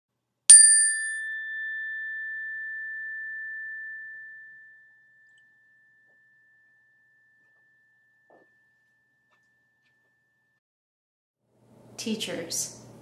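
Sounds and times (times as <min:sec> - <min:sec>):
high-pitched chime ringing: 0:00.5 - 0:09.5.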